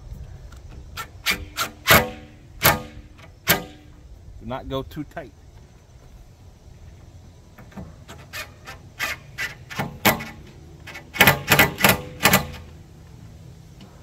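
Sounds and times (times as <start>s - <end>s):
impact driver bursts: 1.0s - 3.8s, 8.2s - 12.7s.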